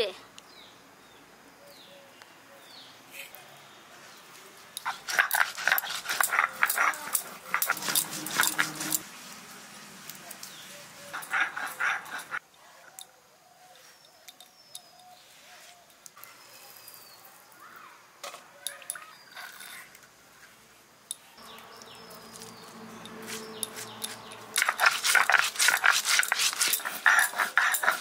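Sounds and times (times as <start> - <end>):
stone roller crushing seeds: 4.8 - 9.0, 21.5 - 28.0.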